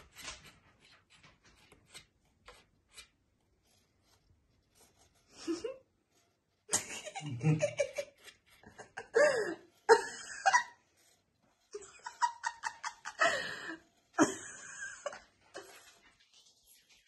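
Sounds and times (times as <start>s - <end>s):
giggling laughter: 6.7s - 10.8s, 11.7s - 15.8s.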